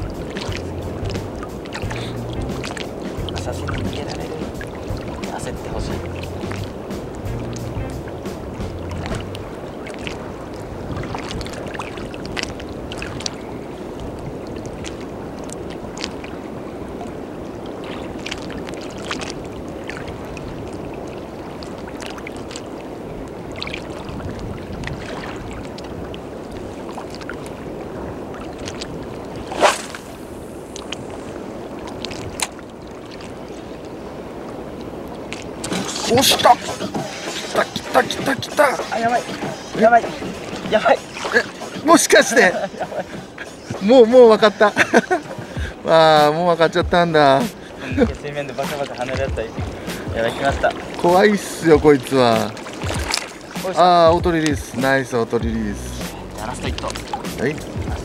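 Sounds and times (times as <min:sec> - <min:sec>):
sharp splash-like knock: 0:00.0 - 0:09.4, 0:29.4 - 0:31.0, 0:47.4 - 0:53.8
shallow sea water sloshing: 0:00.0 - 0:58.0.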